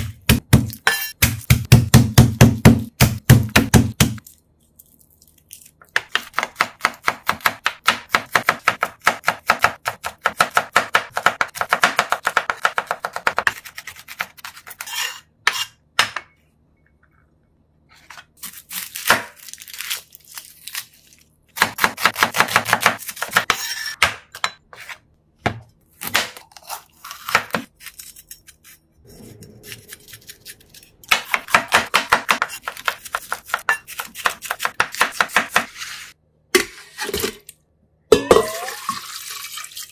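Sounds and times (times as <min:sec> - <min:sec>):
knife chopping on cutting board: 0:00.0 - 0:04.2, 0:06.0 - 0:16.2, 0:21.6 - 0:26.4, 0:31.0 - 0:35.8.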